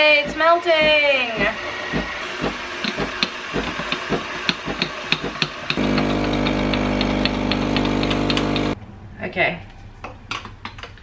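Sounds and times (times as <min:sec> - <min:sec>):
coffee machine pump humming: 0:05.8 - 0:08.8.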